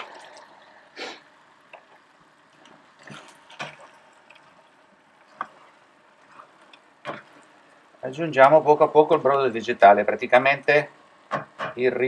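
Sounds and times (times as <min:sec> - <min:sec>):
broth pouring and dripping: 0:00.0 - 0:09.4
stirring in a pan: 0:01.7 - 0:10.4.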